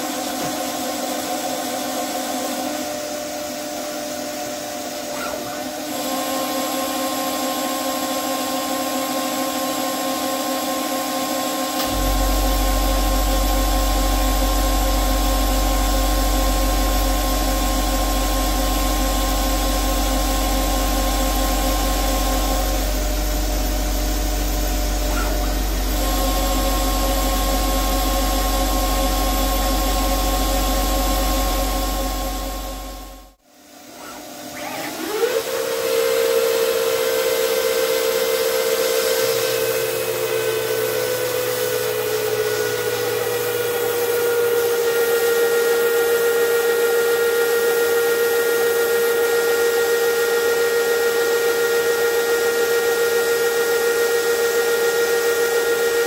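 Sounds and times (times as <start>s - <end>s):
lathe spindle whine: 0.0s - 56.0s
deep rumble: 11.9s - 33.4s.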